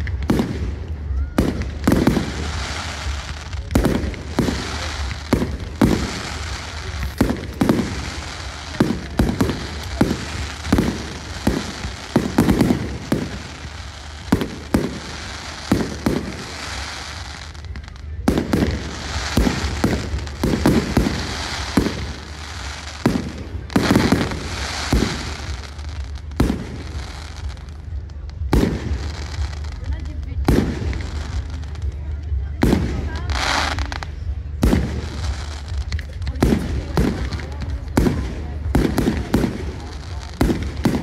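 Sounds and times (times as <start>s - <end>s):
fireworks bangs: 0.0s - 41.0s
steady hiss: 0.0s - 41.0s.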